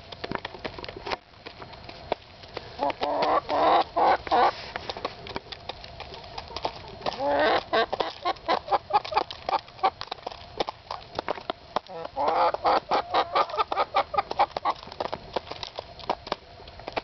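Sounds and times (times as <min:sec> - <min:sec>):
hens pecking seeds from bowl: 0:00.0 - 0:17.0
hen clucking: 0:02.8 - 0:04.6, 0:06.0 - 0:10.0, 0:11.8 - 0:14.8.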